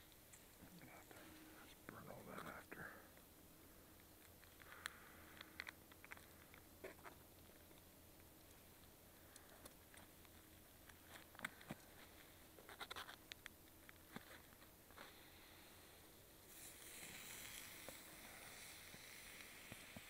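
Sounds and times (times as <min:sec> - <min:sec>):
burger patties sizzling: 0:16.5 - 0:20.0.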